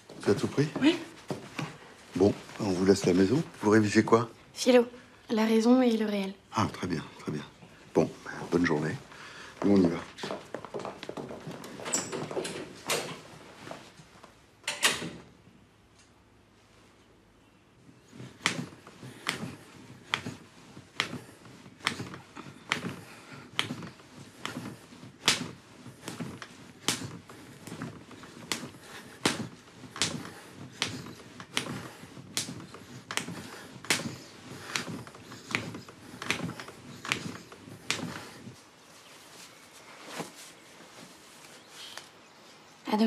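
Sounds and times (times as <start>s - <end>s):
bed knocking rhythmically: 6.6s - 13.9s, 17.8s - 38.7s.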